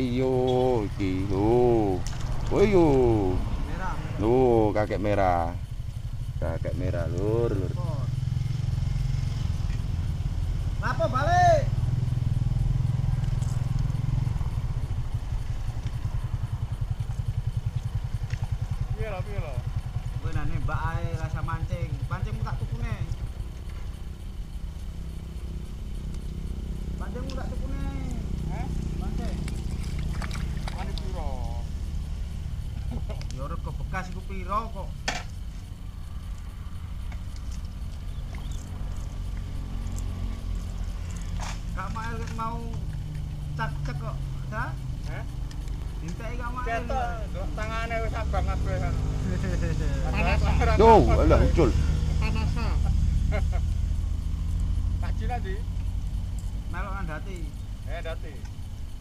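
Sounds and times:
small engine throbbing: 0.0s - 59.0s
faint ticks: 9.5s - 9.9s, 12.6s - 19.0s, 23.1s - 28.5s, 32.3s - 33.4s, 34.0s - 44.0s, 44.8s - 46.4s, 55.6s - 56.7s, 57.3s - 58.9s.

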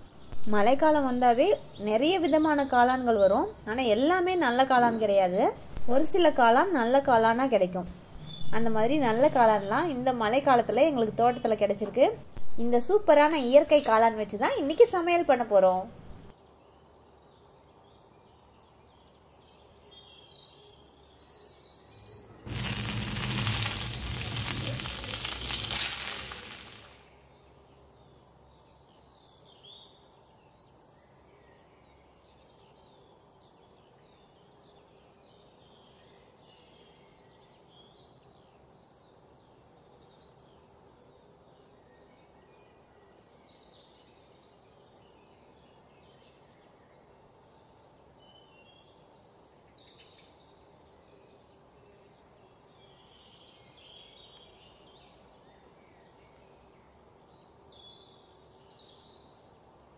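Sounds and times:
mushrooms sizzling in hot oil: 22.4s - 27.1s.

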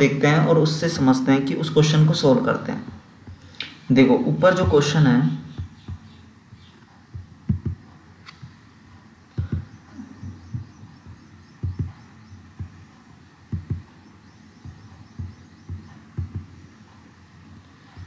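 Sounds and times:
faint steady hiss: 0.0s - 18.0s
soft deep thumps: 5.4s - 8.6s, 9.3s - 17.1s.

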